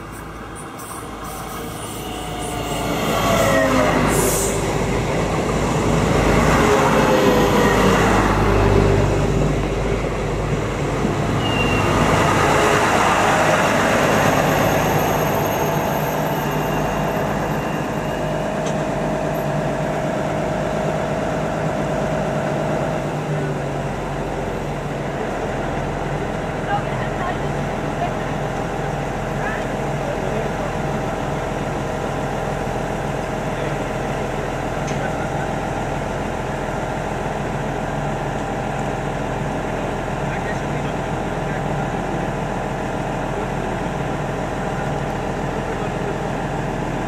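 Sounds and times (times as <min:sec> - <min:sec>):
train braking whine: 0:00.0 - 0:09.2, 0:11.3 - 0:19.8
train engines humming: 0:00.0 - 0:47.0.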